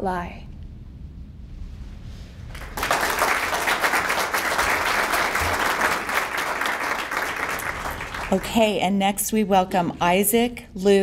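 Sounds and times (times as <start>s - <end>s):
audience applauding: 2.5s - 8.6s.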